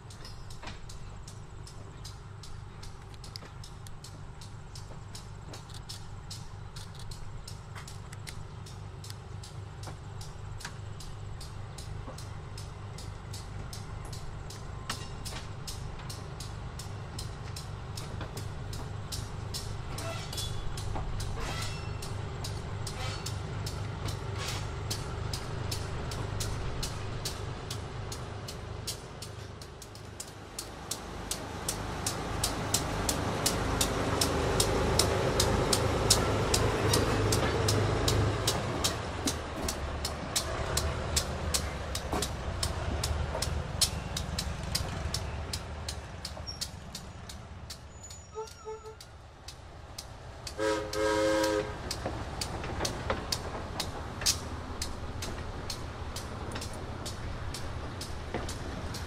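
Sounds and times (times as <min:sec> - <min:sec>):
locomotive engine running: 0:00.0 - 0:59.0
sharp high ticking: 0:00.0 - 0:59.0
wheels clicking on rails: 0:00.0 - 0:59.0
metallic squeal: 0:19.9 - 0:22.2, 0:22.9 - 0:23.4, 0:47.9 - 0:49.1.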